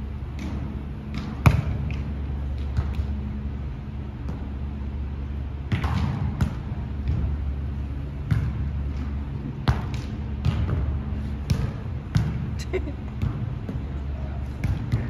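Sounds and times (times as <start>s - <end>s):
steady low hum: 0.0s - 15.0s
volleyball struck by hands: 0.3s - 3.2s, 5.6s - 7.5s, 8.2s - 12.6s, 14.5s - 15.0s.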